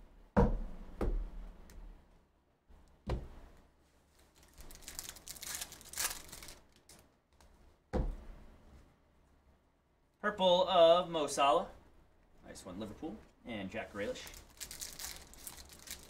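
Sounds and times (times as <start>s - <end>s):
sharp knocks: 0.4s - 1.5s, 7.9s - 8.4s
plastic wrapper crinkling and tearing: 4.2s - 7.0s, 14.1s - 16.0s.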